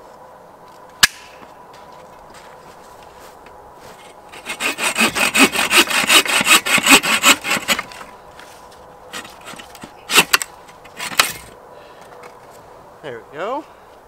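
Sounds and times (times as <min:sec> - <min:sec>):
bow saw cutting wood: 0:04.3 - 0:08.1, 0:09.1 - 0:11.5.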